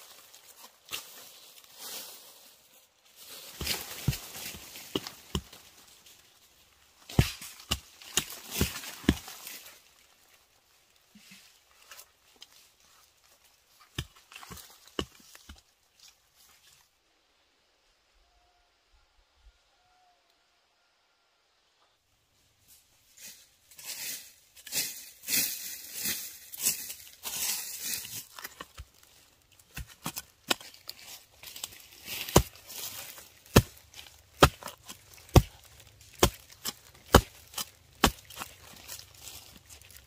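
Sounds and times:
plant material tearing and rustling: 25.9 - 40.0
blade chopping: 32.2 - 38.7.

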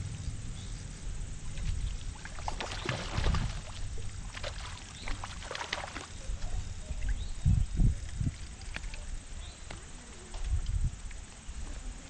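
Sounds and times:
fish splashing and thrashing: 1.4 - 7.4.

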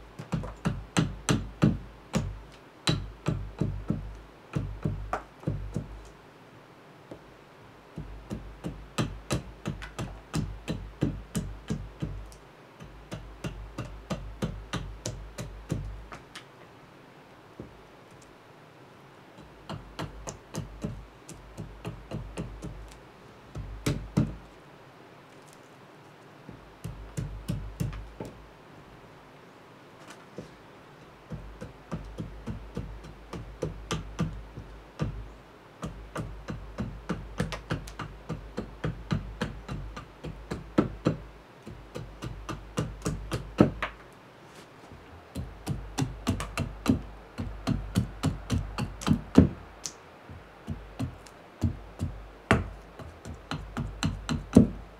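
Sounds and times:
axe chopping wood: 8.0 - 16.4, 19.7 - 24.5, 35.8 - 44.0, 45.4 - 50.0, 50.6 - 54.8.

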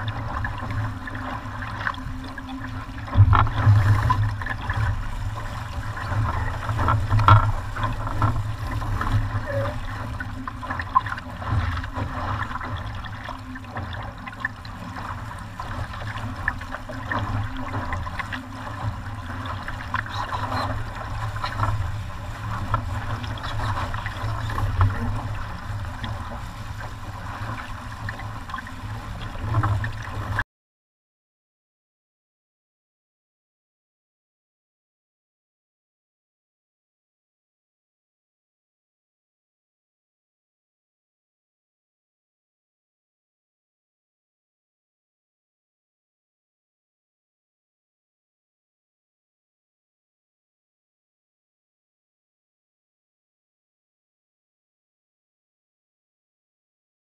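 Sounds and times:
water splashing along a hull: 0.0 - 30.4.

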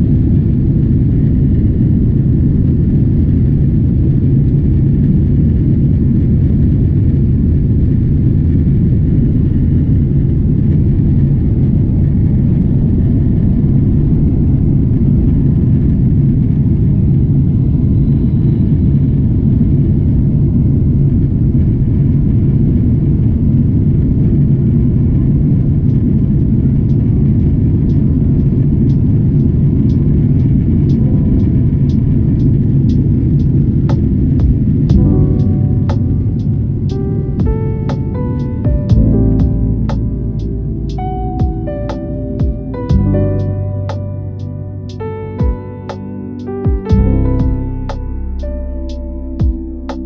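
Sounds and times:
jet engines at takeoff thrust: 0.0 - 39.1
wheels rumbling on runway: 0.0 - 44.1.

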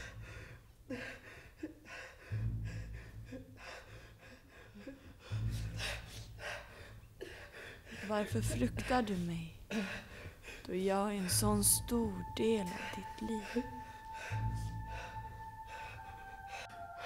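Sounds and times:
man breathing heavily: 0.0 - 11.4, 12.7 - 17.0
deep low drone: 2.2 - 7.1, 11.2 - 17.0.

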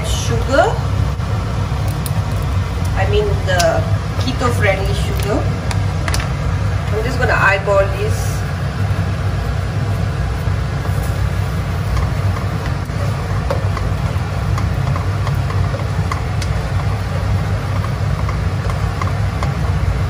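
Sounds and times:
steady low hum: 0.0 - 20.0
spatula stirring sauce in wok: 8.5 - 20.0.

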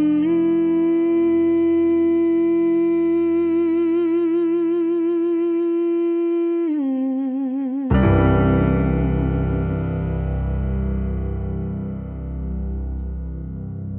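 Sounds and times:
person humming a held note: 0.0 - 10.3.

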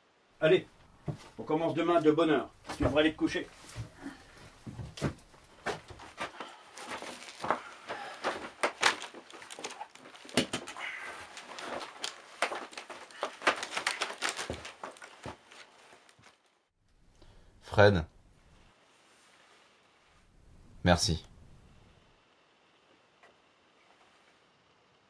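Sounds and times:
clothing and blanket rustling: 0.8 - 16.7, 18.4 - 20.3.

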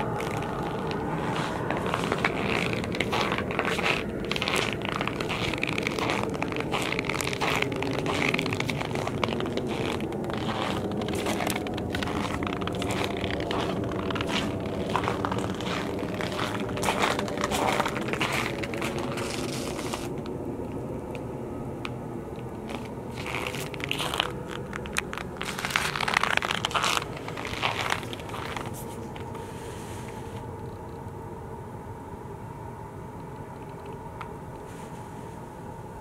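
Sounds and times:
footsteps crunching in snow: 0.0 - 20.2, 22.6 - 30.4
steady low hum: 0.0 - 36.0.

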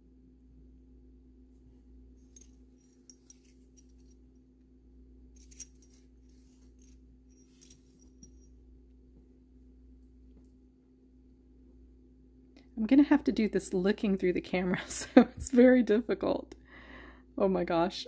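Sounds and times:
low steady hum: 0.0 - 18.0
light clicks and clinks: 2.2 - 4.2, 5.4 - 8.6.

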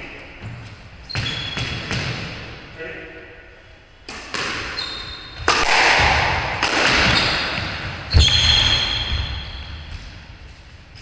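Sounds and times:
shoes squeaking on wooden floor: 0.4 - 1.9, 4.7 - 5.4, 7.0 - 11.0
squash ball struck by racket: 1.2 - 2.6, 4.0 - 10.2.

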